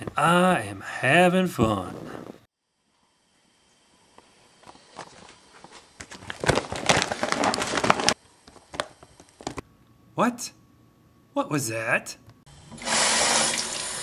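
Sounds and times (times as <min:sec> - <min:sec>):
bag rustling and crinkling: 0:05.0 - 0:08.2.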